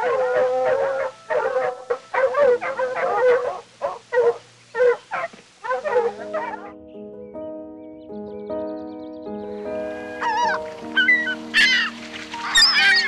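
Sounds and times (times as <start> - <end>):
fox kits whining and yipping: 0.0 - 6.7, 9.9 - 13.0
music with held notes: 6.1 - 13.0.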